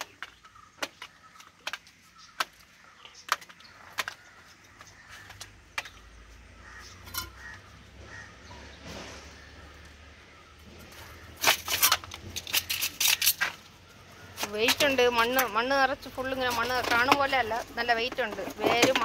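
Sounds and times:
plastic bucket cracking and snapping: 0.0s - 6.2s, 11.3s - 13.7s, 16.4s - 19.0s
plastic shards clinking: 11.3s - 13.8s.

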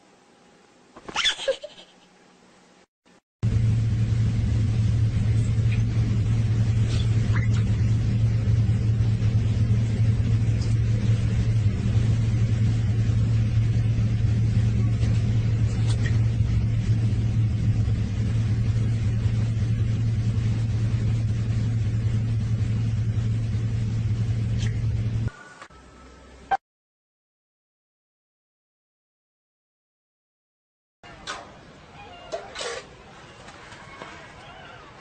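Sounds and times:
steady low hum: 1.7s - 26.6s
low rumbling noise: 3.4s - 26.5s.

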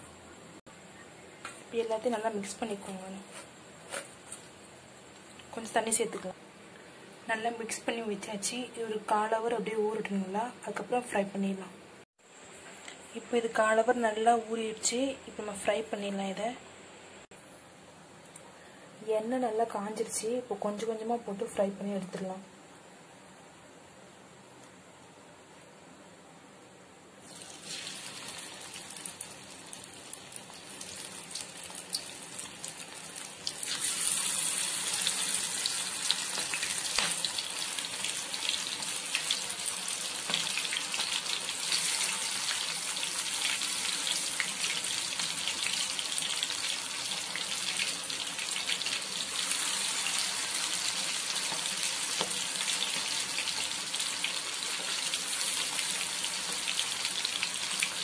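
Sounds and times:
prawns sizzling in hot oil: 27.2s - 58.0s.

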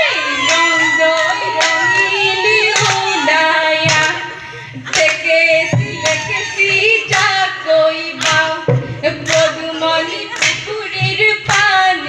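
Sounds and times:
women singing: 0.0s - 12.0s
sharp hand claps: 2.7s - 3.1s, 3.9s - 4.2s, 4.9s - 5.2s, 6.0s - 7.4s, 8.2s - 9.6s, 10.3s - 11.8s.

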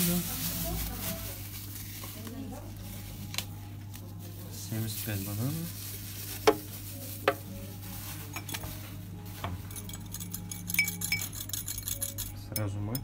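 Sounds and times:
kitchen utensils clinking: 8.2s - 13.0s.

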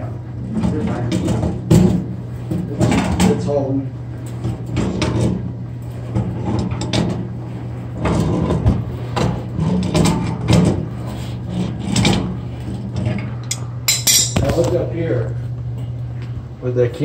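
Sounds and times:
steady low hum: 0.0s - 17.0s
pliers clanking on metal nut: 13.5s - 14.5s.

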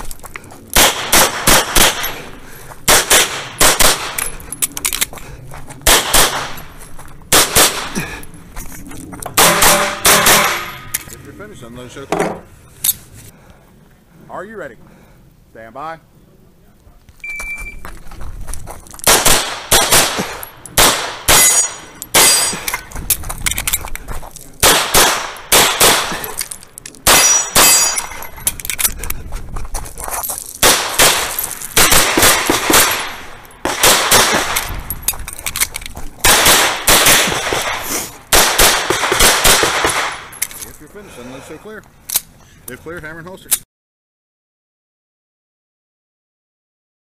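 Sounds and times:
rapid pistol fire: 0.8s - 2.2s, 2.9s - 4.2s, 5.8s - 6.6s, 7.3s - 8.0s, 19.1s - 22.4s, 24.6s - 26.4s, 30.6s - 34.7s, 36.2s - 40.3s.

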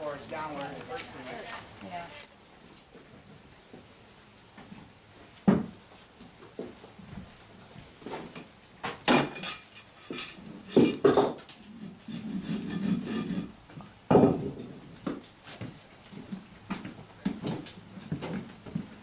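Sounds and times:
scraping on hoof: 9.6s - 13.9s.

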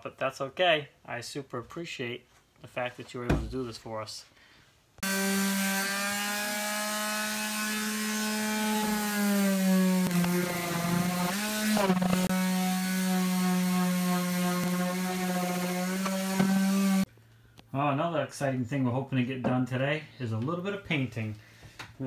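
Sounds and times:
electric sander whining: 5.0s - 17.1s.

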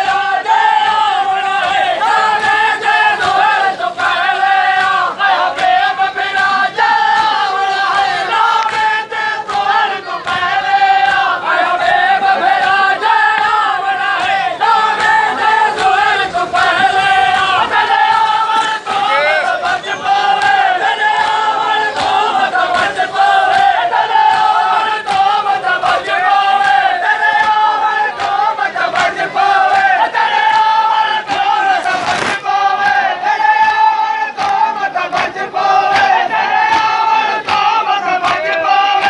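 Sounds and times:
men chanting in unison: 0.0s - 39.0s
chest-beating slaps: 24.3s - 26.8s, 31.3s - 33.0s.

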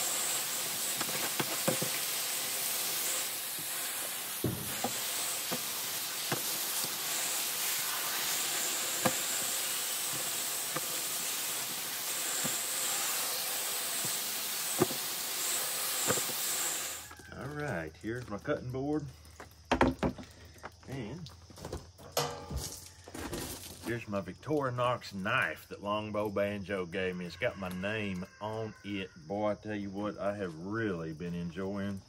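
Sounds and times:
hose nozzle spray hissing: 0.0s - 17.2s.

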